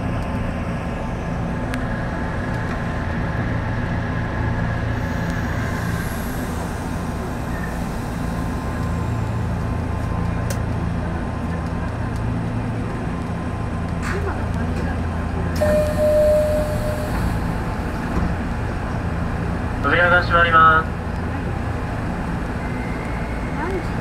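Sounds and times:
train wheels rumbling: 1.3 - 24.0.

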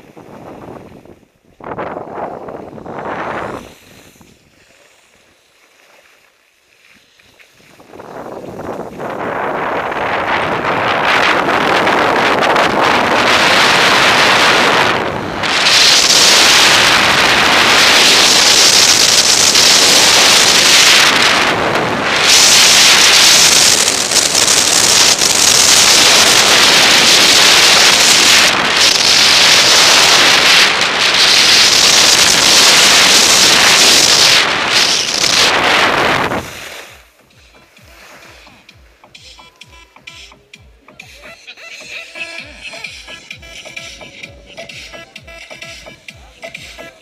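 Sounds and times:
wind rushing over microphone: 0.0 - 4.7, 7.6 - 38.7
skis hissing over snow: 2.8 - 37.1.

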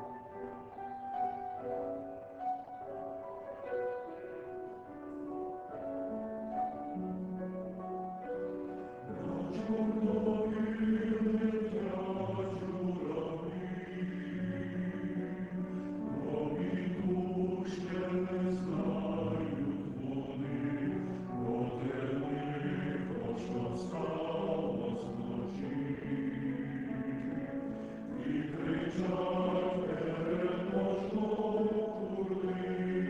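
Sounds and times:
male choir singing: 8.8 - 33.0.

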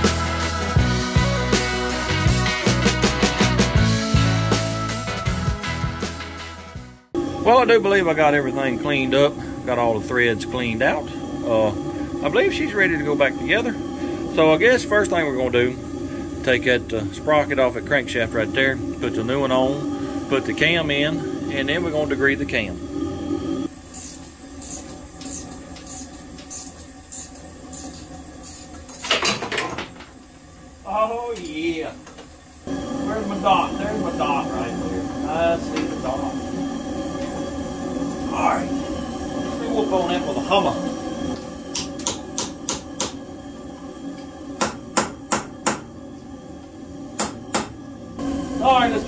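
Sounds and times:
hammer striking metal tool: 41.7 - 43.2, 44.6 - 45.9, 47.2 - 47.8.

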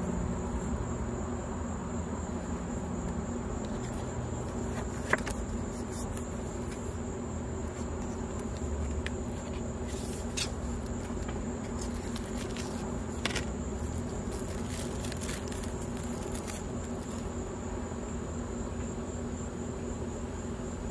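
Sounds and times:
insects buzzing: 0.0 - 20.9
paper and plastic crinkling: 3.7 - 7.0, 7.7 - 17.3.

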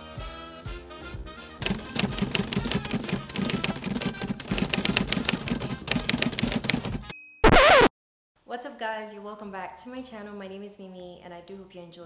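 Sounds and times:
typewriter keystroke clacks: 1.6 - 7.1.

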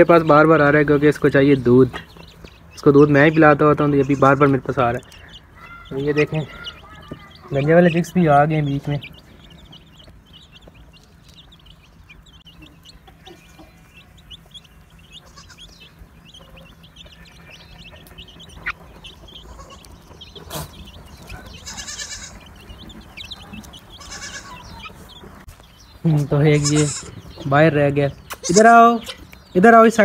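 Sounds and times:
chicks peeping: 0.0 - 30.0
goat kid bleating: 5.6 - 8.0, 15.1 - 15.9, 19.3 - 22.6, 23.2 - 25.0, 26.4 - 27.2, 28.3 - 29.3.

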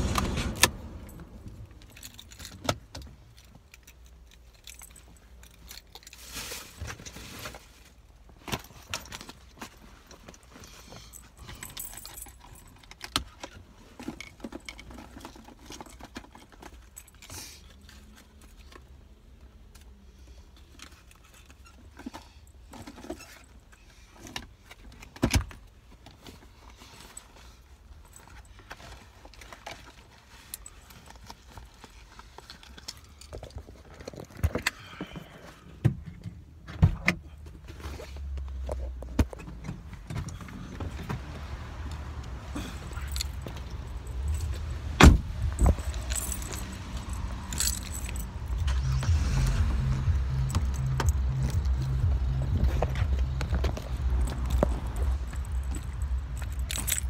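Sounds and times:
rustling and jangling: 0.0 - 35.6, 37.3 - 57.0
clicks of things handled: 50.4 - 57.0.

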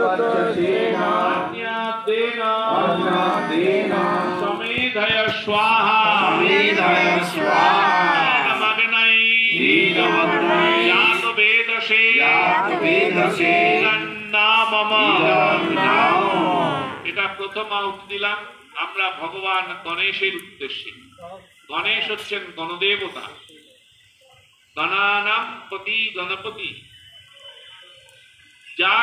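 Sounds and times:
men chanting in unison: 0.0 - 17.1.

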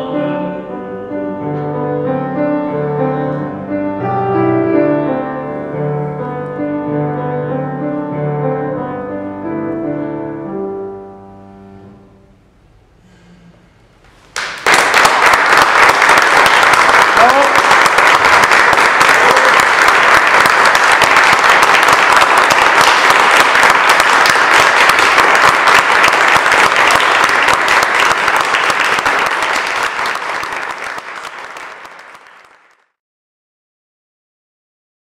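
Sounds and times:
audience applauding: 14.3 - 32.9.

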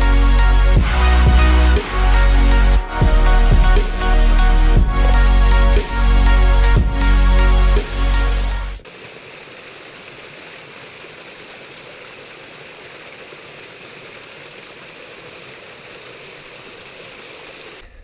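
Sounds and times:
electronic music: 0.0 - 8.8
stream running over stones: 8.8 - 17.9.

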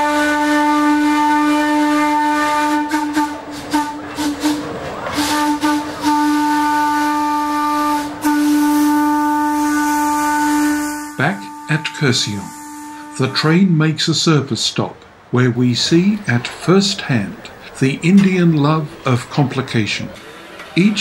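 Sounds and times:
steam locomotive whistle blasts: 0.0 - 13.6
steam hissing: 2.6 - 13.3.

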